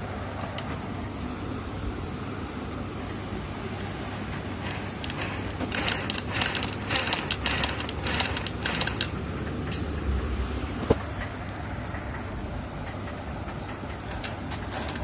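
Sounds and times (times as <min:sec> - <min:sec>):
sewing machine rapid clicking: 0:04.6 - 0:09.2, 0:13.9 - 0:15.0.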